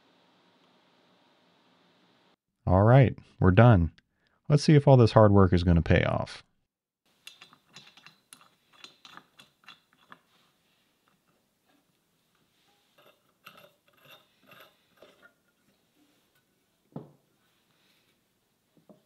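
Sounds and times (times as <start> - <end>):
small metal clicks: 7.2 - 10.2.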